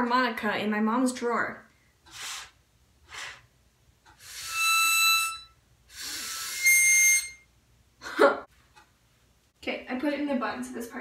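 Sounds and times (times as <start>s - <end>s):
mini harmonica notes: 4.2s - 7.5s.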